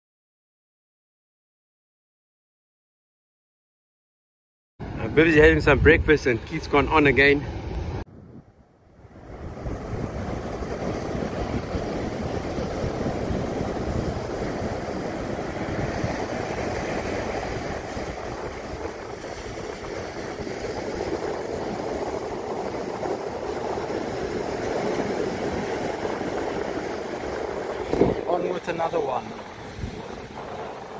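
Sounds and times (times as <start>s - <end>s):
ocean surf breaking on beach: 4.8s - 30.9s.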